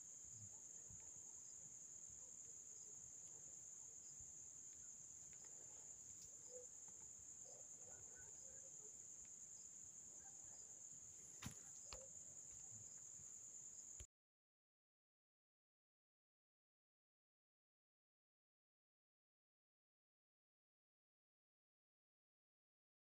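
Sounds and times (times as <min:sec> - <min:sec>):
faint high-pitched whine: 0:00.0 - 0:14.1.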